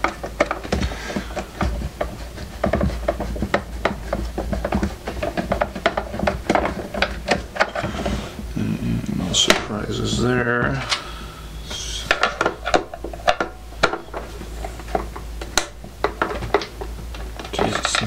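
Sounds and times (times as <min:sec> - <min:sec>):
clicks and taps on plastic case: 0:00.0 - 0:07.7.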